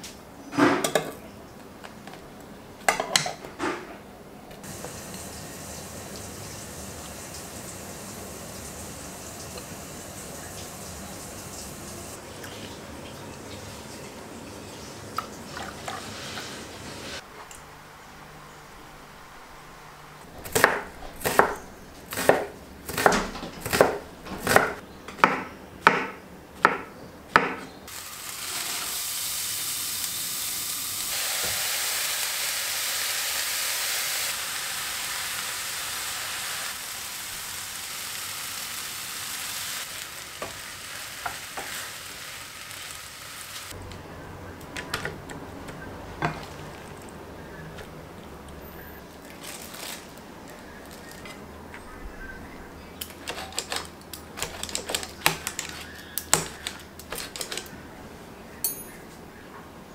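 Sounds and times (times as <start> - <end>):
food sizzling in a frying pan: 4.6 - 12.2, 27.9 - 43.8.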